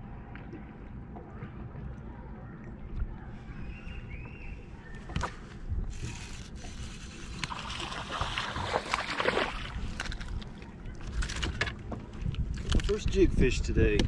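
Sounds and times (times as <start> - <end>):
steady low rumble: 0.0 - 14.0
fish splashing at surface: 6.0 - 10.6.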